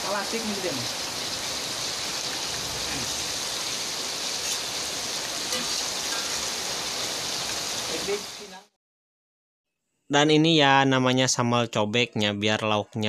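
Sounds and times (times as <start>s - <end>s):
fish sizzling in oil: 0.0s - 8.7s.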